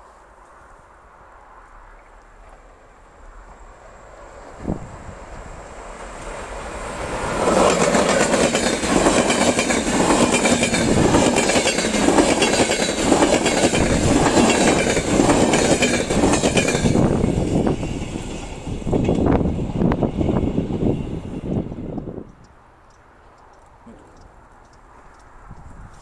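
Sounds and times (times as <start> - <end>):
wheels clattering on rails: 7.2 - 20.9.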